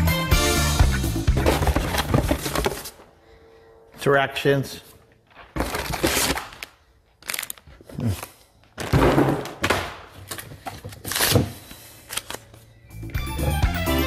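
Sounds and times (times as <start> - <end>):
background music with drum beat: 0.0 - 1.9, 13.2 - 14.0
cardboard and plastic rustling: 1.4 - 3.1, 5.3 - 8.9, 10.2 - 12.6.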